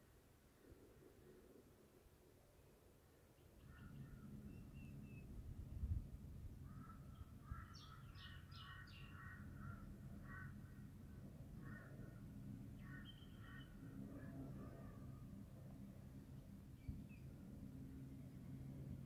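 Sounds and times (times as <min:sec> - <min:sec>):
faint birds chattering: 0:03.4 - 0:05.3, 0:06.6 - 0:14.9.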